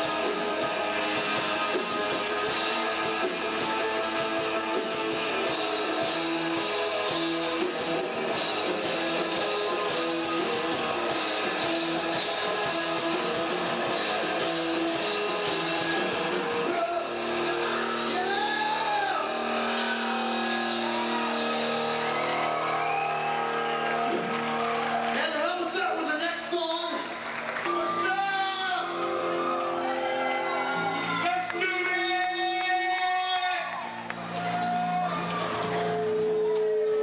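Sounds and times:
guitars holding long chords: 0:00.0 - 0:25.1.

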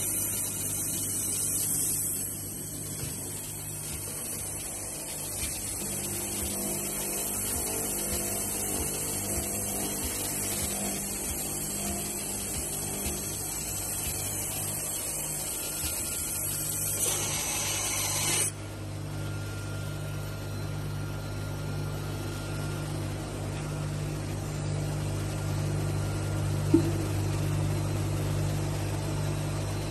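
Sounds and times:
polishing machine motors humming: 0:00.0 - 0:18.6.

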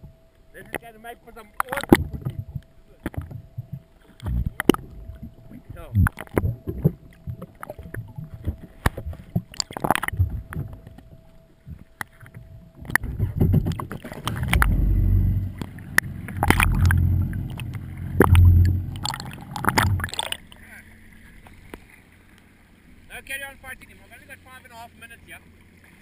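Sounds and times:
underwater rushing rumble: 0:01.8 - 0:21.3.

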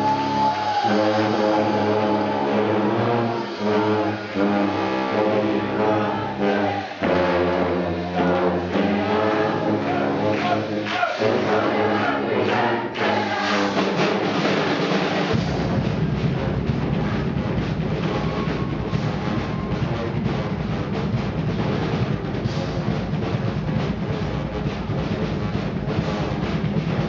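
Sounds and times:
brass band playing: 0:00.0 - 0:27.0
heavy deep bass: 0:15.3 - 0:27.0.

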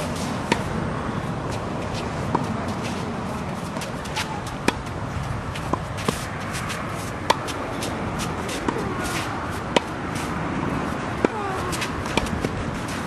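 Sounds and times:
tennis ball struck by racquet: 0:00.0 - 0:00.8, 0:03.7 - 0:10.3, 0:11.2 - 0:13.0
steady background noise: 0:00.0 - 0:13.0
sneakers scuffing on court: 0:01.5 - 0:11.0, 0:11.6 - 0:13.0.

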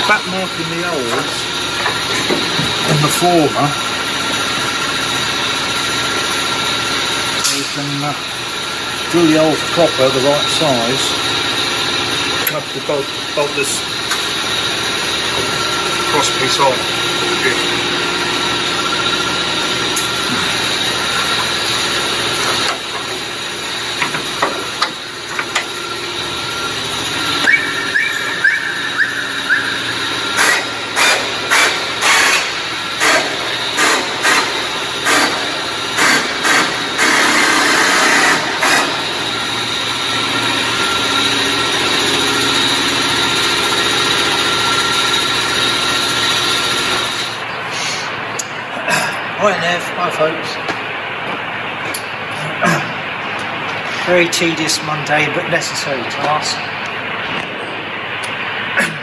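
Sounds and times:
mechanical hum: 0:00.0 - 0:59.0
grinding or drilling: 0:26.8 - 0:48.1.

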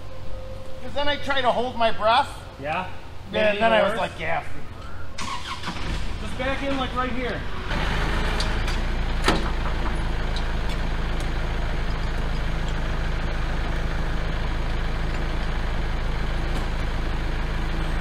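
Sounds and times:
tractor diesel engine running: 0:00.0 - 0:18.0.

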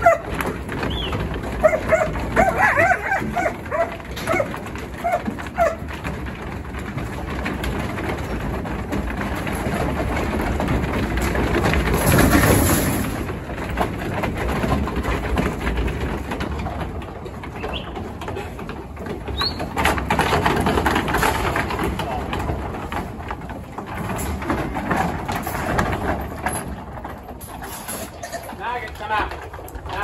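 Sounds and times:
hooves clattering on wooden floor: 0:00.0 - 0:30.0.

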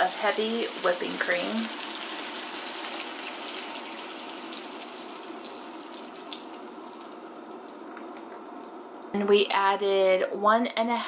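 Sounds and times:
chicken sizzling in a pan: 0:00.0 - 0:09.1
liquid pouring: 0:01.8 - 0:09.1.

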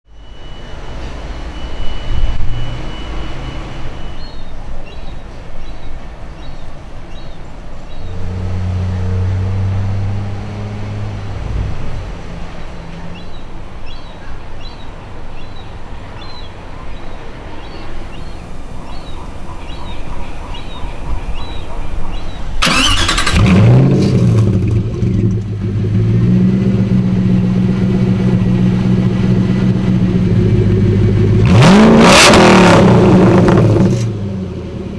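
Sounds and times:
outdoor background noise: 0:00.0 - 0:34.9
car engine starting and idling: 0:22.6 - 0:34.9.

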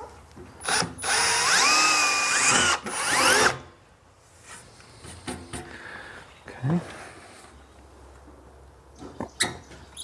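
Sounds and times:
cordless drill motor whining: 0:00.6 - 0:03.7.

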